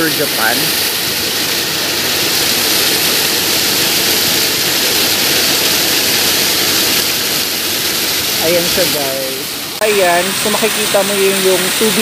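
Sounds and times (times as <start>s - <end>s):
water pouring and splashing: 0.0s - 12.0s.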